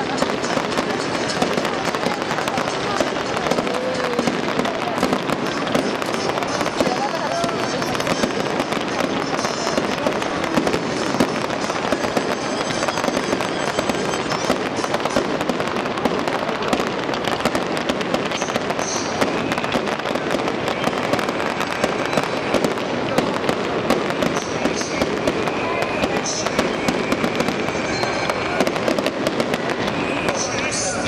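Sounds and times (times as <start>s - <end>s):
fireworks crackling and banging: 0.0s - 31.0s.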